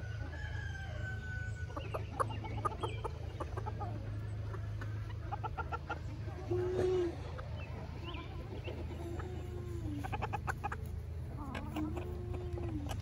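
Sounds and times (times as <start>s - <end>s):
chickens clucking and chirping: 0.0s - 13.0s.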